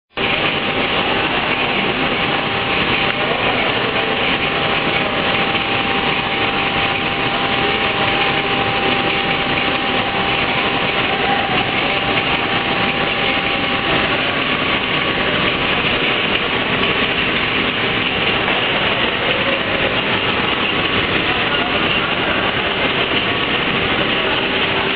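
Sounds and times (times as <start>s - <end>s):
machine motors and conveyors running: 0.1s - 24.9s
faint steady whine: 0.2s - 24.9s.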